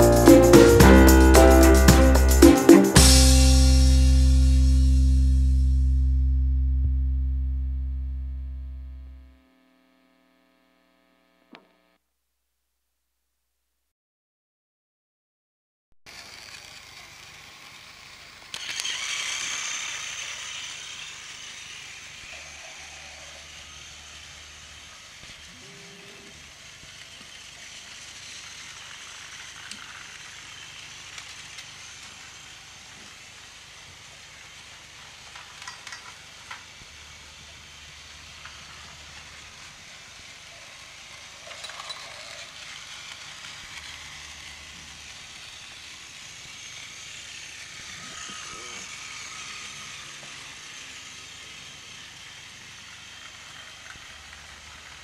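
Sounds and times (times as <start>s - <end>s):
light clicks of toy train: 16.1s - 25.5s, 26.3s - 55.0s
toy train motor whirring: 16.1s - 55.0s.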